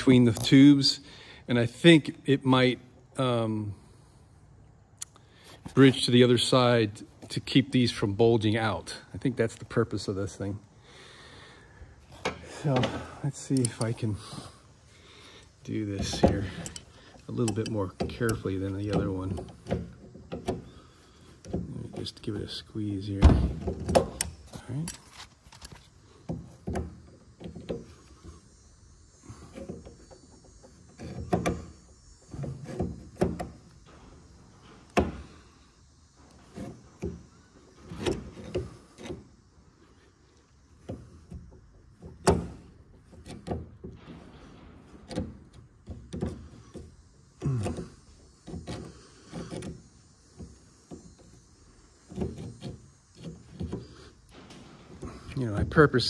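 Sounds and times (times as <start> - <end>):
pliers clicking and scraping metal: 13.5 - 14.0, 15.4 - 19.8, 23.9 - 25.9.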